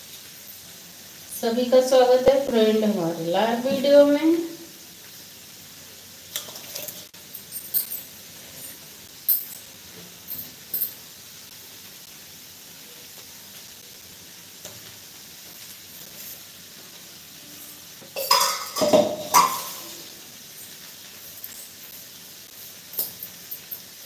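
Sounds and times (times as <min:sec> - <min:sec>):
faint hiss: 0:00.0 - 0:24.0
steel utensils clinking: 0:06.3 - 0:08.7, 0:18.2 - 0:20.0, 0:22.9 - 0:23.9
metal pots clattering and ringing: 0:18.1 - 0:20.0.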